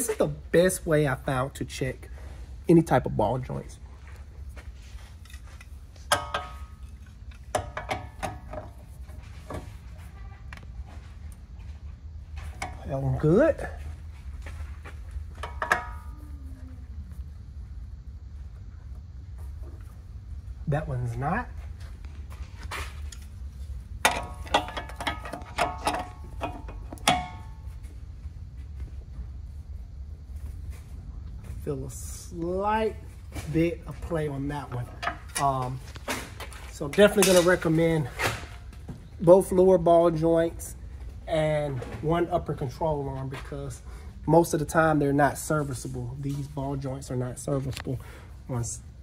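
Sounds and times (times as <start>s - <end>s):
metal pry bar clanking: 6.1s - 8.7s, 15.4s - 16.1s, 24.0s - 27.6s.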